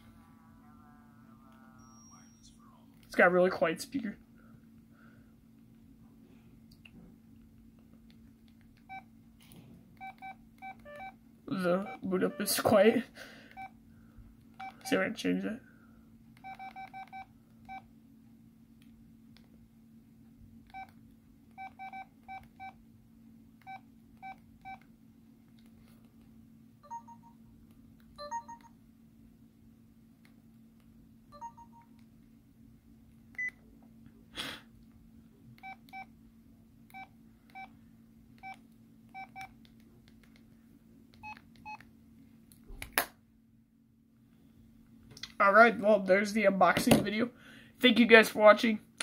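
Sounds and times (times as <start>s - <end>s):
steady low hum: 0.0s - 47.8s
phone keypad beeping: 10.0s - 11.2s, 11.8s - 12.6s, 16.4s - 17.8s, 21.6s - 22.8s, 26.8s - 27.4s, 28.2s - 28.7s, 31.4s - 31.9s, 39.2s - 39.5s, 41.2s - 41.8s.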